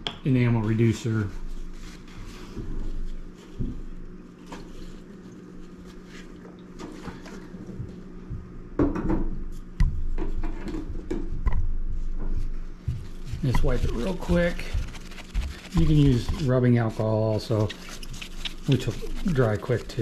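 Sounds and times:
steady low hum: 0.0 - 20.0
cloth rag rustling: 12.9 - 20.0.

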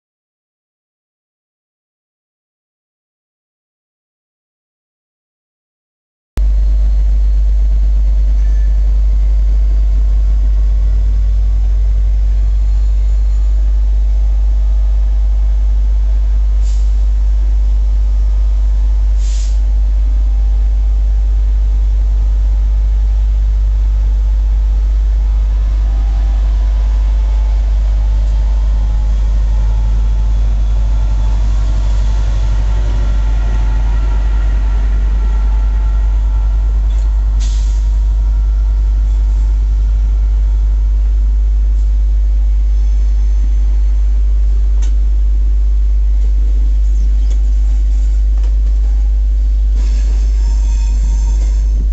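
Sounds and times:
diesel locomotive engine drone: 6.4 - 51.9
air hissing: 19.2 - 19.7, 25.2 - 38.5, 49.8 - 51.9.

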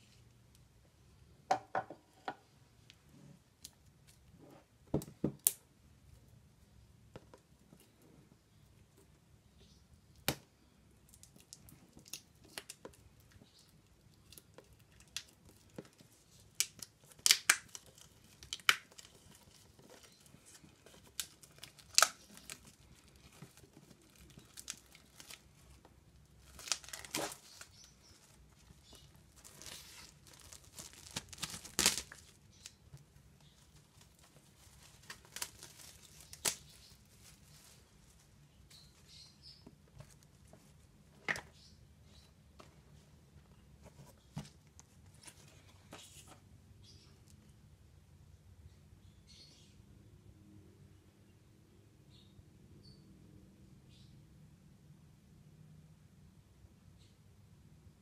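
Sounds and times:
plastic wrap crinkling: 11.1 - 39.2
plastic wrap tearing snaps: 16.5 - 20.2, 20.9 - 25.5, 26.4 - 32.8, 33.9 - 37.0.

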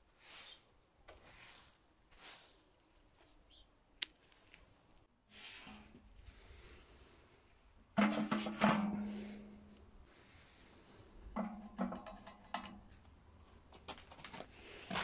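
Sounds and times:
metal bucket clanking and ringing: 8.0 - 9.6.

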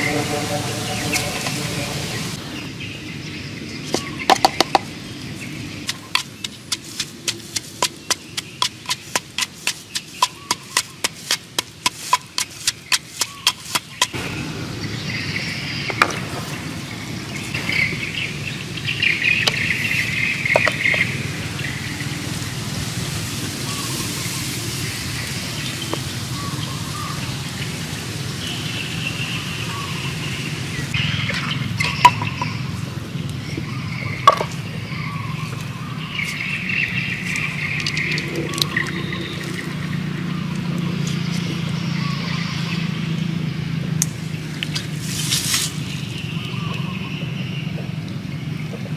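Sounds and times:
outdoor background noise: 0.0 - 48.9
wooden pestle pounding in mortar: 4.3 - 4.9, 5.8 - 14.2.

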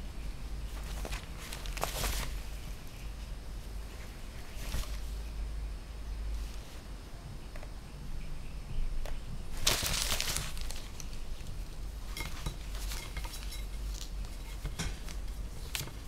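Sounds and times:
paper rustling and crinkling: 0.7 - 2.6, 3.9 - 5.2, 9.5 - 16.0.

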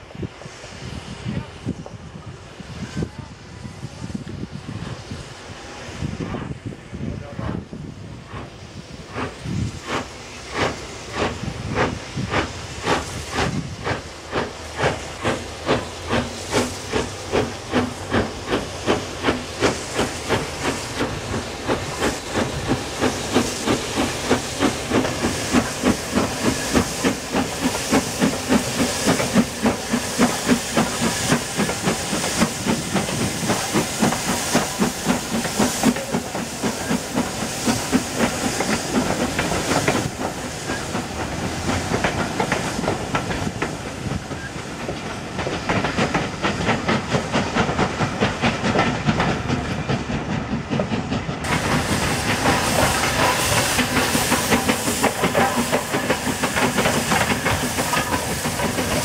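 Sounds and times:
steam hissing: 0.0 - 59.0
steam locomotive exhaust beats: 0.0 - 59.0.

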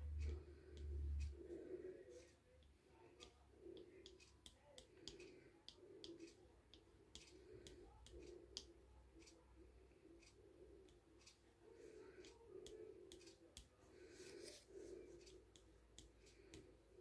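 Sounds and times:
faint low pulsing sound: 0.0 - 1.6
faint clicking and ticking: 0.0 - 13.9, 14.5 - 17.0.

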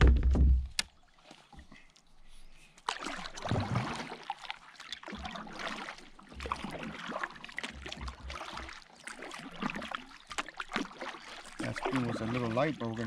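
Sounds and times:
kayak paddle splashing: 0.9 - 13.0
water dripping off paddle: 2.8 - 13.0.

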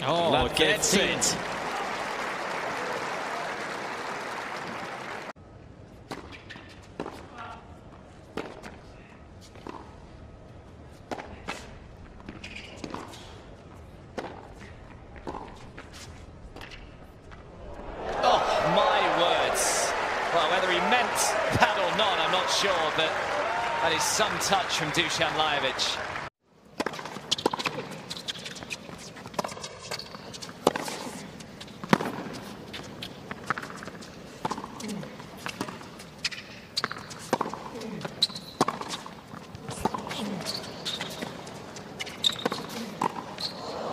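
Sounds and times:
tennis ball bouncing: 14.1 - 15.6, 26.7 - 43.6
racket striking tennis ball: 26.8 - 31.2, 31.8 - 43.4.

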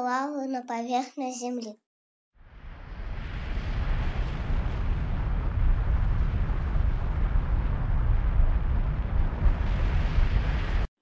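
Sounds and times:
deep rumble: 2.4 - 10.9.

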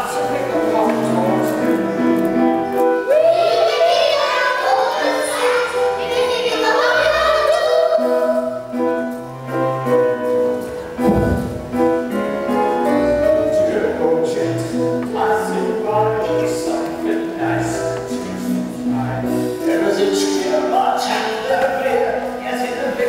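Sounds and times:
instrumental backing held notes: 0.0 - 23.0
children singing: 3.1 - 8.6
low thump: 11.0 - 12.0.

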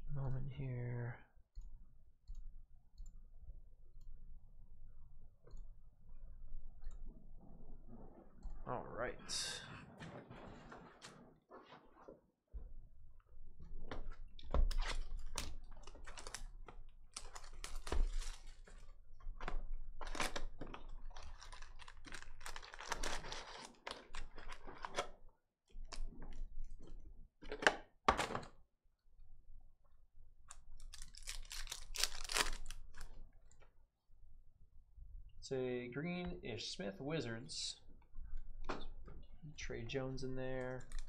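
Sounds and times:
foil packs crinkling: 15.4 - 18.9, 20.0 - 25.0, 30.8 - 33.2.

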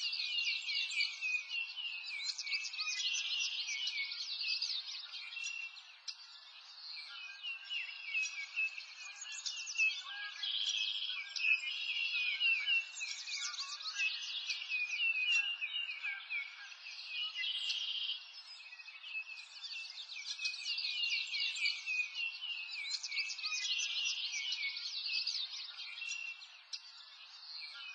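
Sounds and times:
songbirds chirping: 0.0 - 27.9.

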